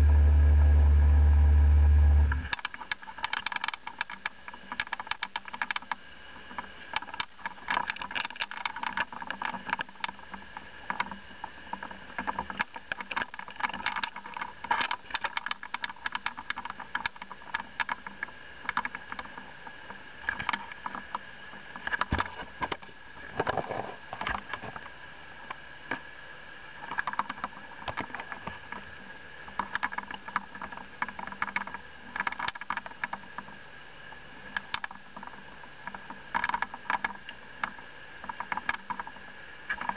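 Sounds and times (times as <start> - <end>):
boat motor whining: 0.0 - 2.6
crackles and clicks: 0.0 - 26.0, 26.8 - 39.9.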